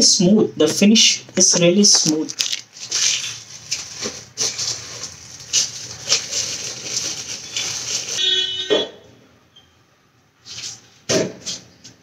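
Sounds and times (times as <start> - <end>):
plastic wrap rustling: 1.3 - 8.7.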